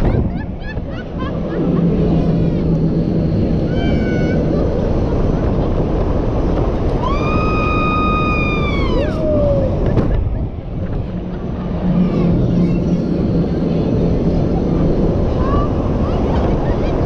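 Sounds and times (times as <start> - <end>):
wind buffeting microphone: 0.0 - 17.0
lower falling cry: 7.0 - 10.0.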